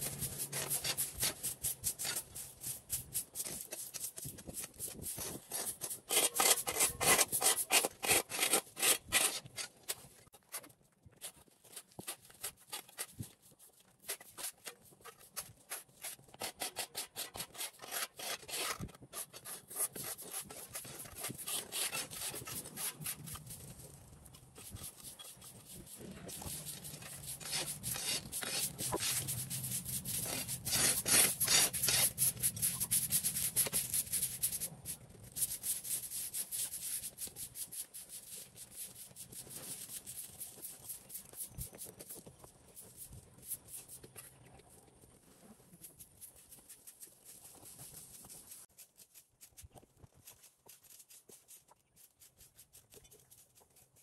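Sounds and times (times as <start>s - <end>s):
tool scraping rough surface: 0.0s - 10.7s, 14.0s - 34.3s.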